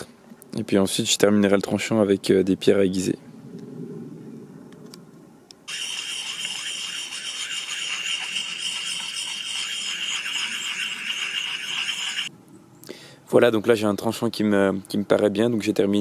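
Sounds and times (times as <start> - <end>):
sharpening stone scraping axe: 5.7 - 12.3.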